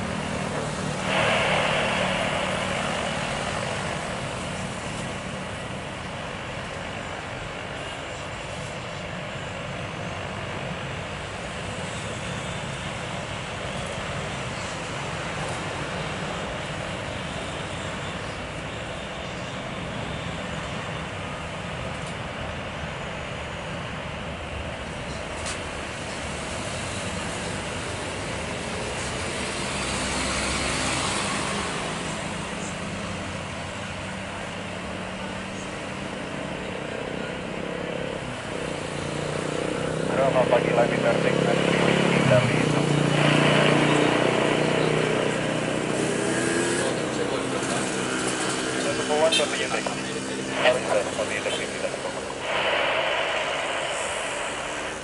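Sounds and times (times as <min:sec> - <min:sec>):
jet engines roaring: 0:00.0 - 0:55.0.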